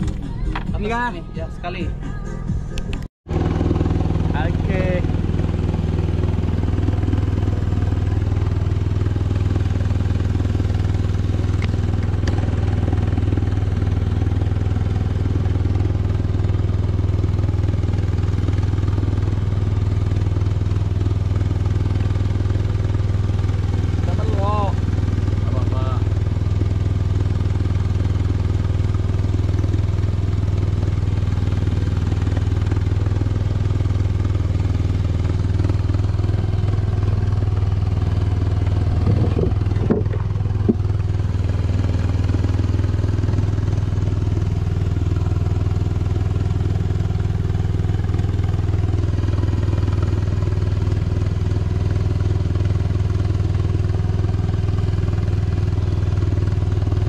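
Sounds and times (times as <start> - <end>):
boat engine droning: 0.0 - 57.0
short knocks: 39.0 - 40.8.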